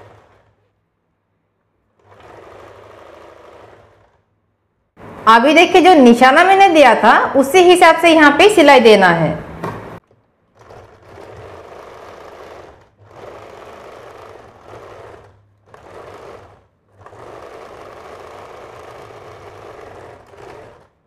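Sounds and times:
sewing machine stitching: 0.0 - 0.9, 1.8 - 4.4, 10.0 - 21.0.

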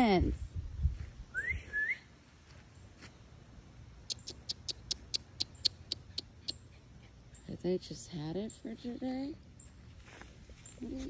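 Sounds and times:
bird chirps: 4.1 - 6.7.

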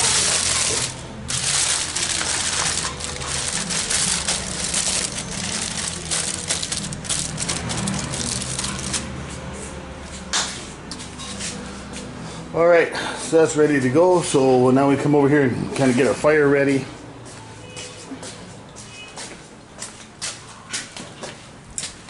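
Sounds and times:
aluminium foil crinkling: 0.0 - 9.2.

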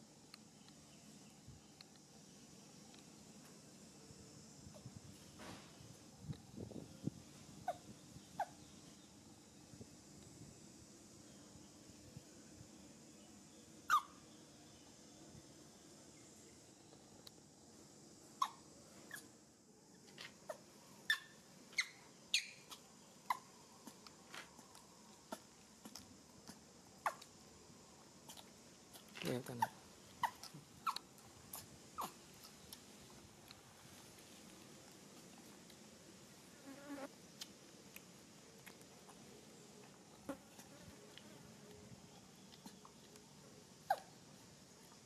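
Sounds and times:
housefly buzzing: 36.6 - 37.1.

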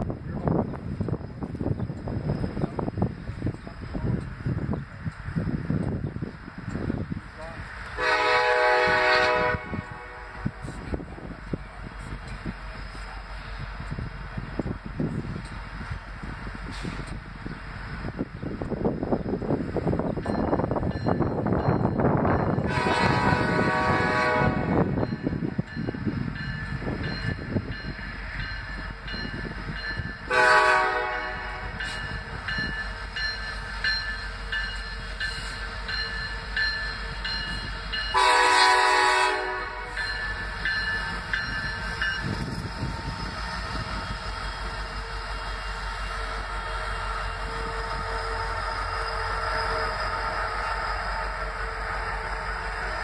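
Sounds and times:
locomotive air horn blasts: 8.0 - 10.8, 22.6 - 25.0, 30.3 - 31.8, 38.1 - 40.0.

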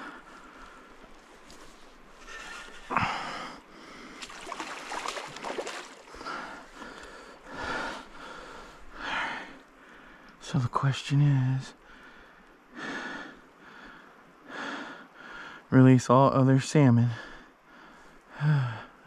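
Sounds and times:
man breathing hard: 2.2 - 4.3, 6.1 - 10.4, 17.2 - 19.0.

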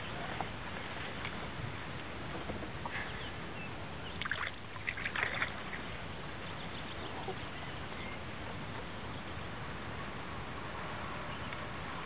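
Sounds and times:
wind: 0.0 - 12.0
water splashes: 4.0 - 7.4.

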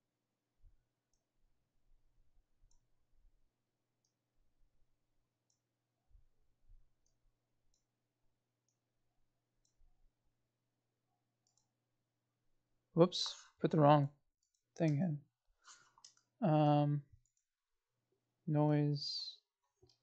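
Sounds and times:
computer mouse clicks: 7.0 - 7.9, 11.4 - 11.7, 15.8 - 16.3, 17.2 - 17.5.

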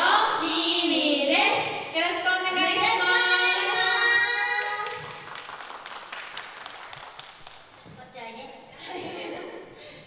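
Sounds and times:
hand clapping: 4.5 - 8.0.

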